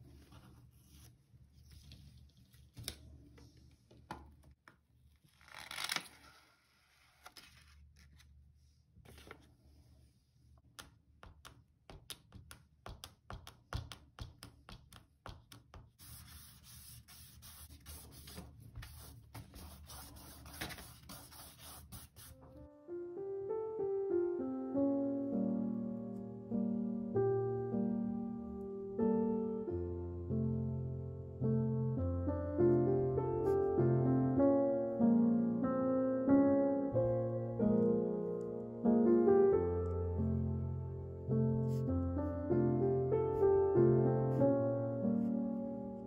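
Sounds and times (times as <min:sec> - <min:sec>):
paper rustling: 0:05.2 - 0:09.8, 0:15.9 - 0:22.6
eraser rubbing on paper: 0:15.7 - 0:22.4.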